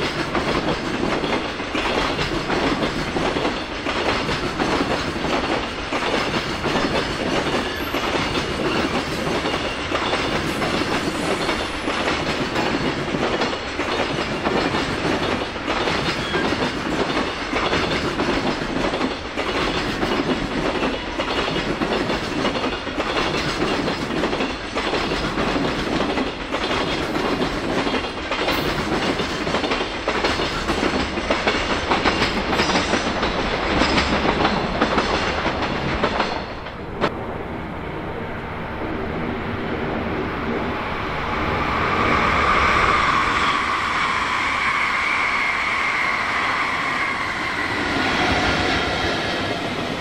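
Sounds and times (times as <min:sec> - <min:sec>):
train wheels clattering: 0:00.0 - 0:37.1
electric train whine: 0:00.0 - 0:50.0.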